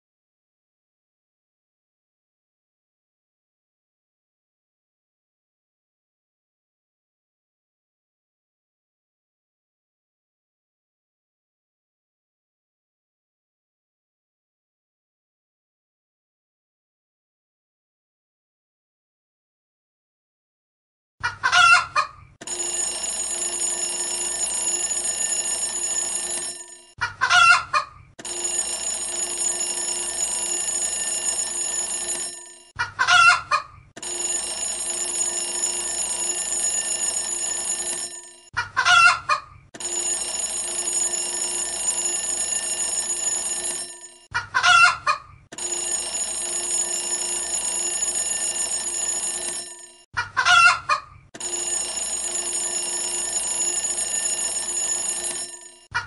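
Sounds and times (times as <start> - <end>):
chicken call alarm: 21.2 - 22.3, 27.0 - 28.1, 32.8 - 33.8, 38.6 - 39.6, 44.3 - 45.4, 50.2 - 51.2
electric bell ringing: 22.4 - 27.0, 28.2 - 32.8, 34.0 - 38.5, 39.8 - 44.3, 45.6 - 50.1, 51.4 - 55.9.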